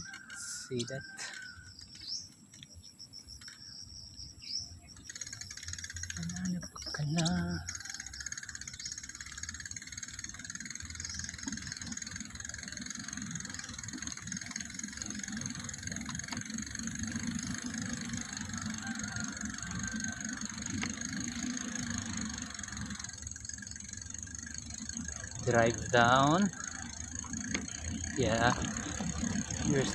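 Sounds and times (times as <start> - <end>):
bicycle tyres rumbling on concrete: 7.2 - 29.9.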